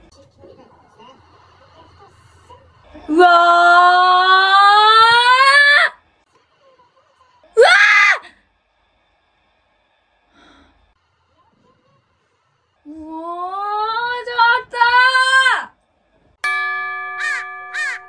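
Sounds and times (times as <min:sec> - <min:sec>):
woman screaming: 0:07.6 - 0:08.3.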